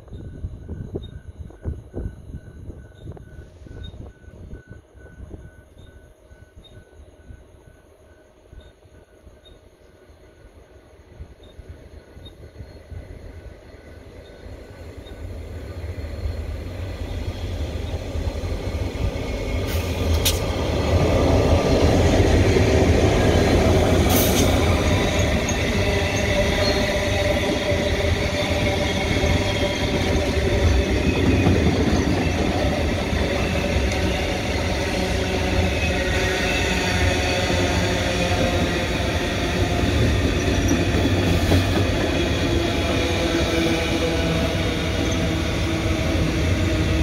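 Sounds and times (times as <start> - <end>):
diesel locomotive engine: 0.0 - 47.0
train wagons rumbling and rattling: 11.4 - 47.0.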